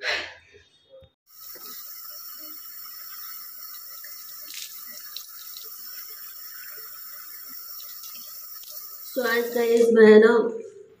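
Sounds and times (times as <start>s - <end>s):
water splashing face washing: 1.3s - 9.9s.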